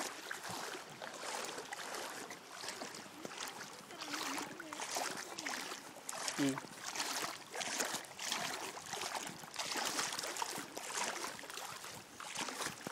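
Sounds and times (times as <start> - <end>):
seawater sloshing and splashing: 0.0 - 12.9.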